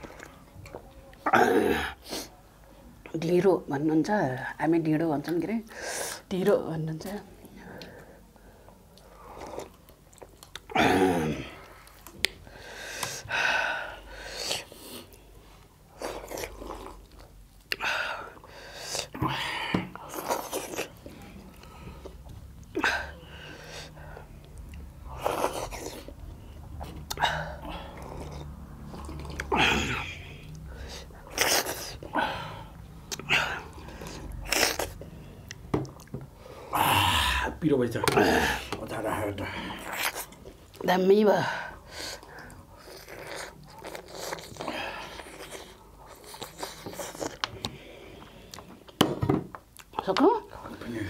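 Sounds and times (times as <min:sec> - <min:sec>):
chewing: 0:08.9 - 0:10.8, 0:24.4 - 0:29.6, 0:42.0 - 0:49.0
chewing and biting: 0:09.3 - 0:10.7, 0:42.1 - 0:47.7.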